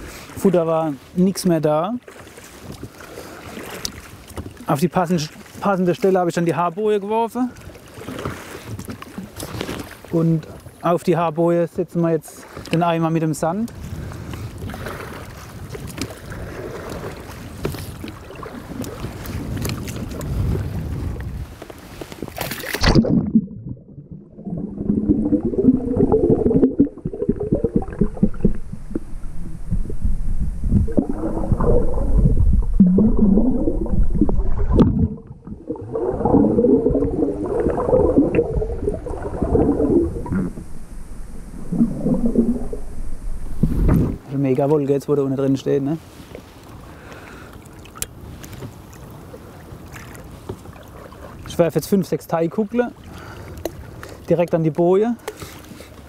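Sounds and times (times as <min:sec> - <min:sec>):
water around a boat: 0:00.0 - 0:56.0
wind: 0:00.0 - 0:56.0
sharp splash: 0:22.4 - 0:23.7
water gurgling underwater: 0:22.6 - 0:44.2.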